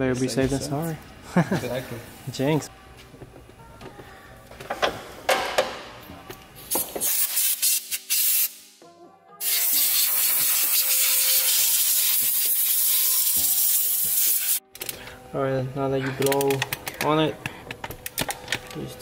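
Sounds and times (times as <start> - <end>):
air blow gun hissing: 9.4 - 14.6.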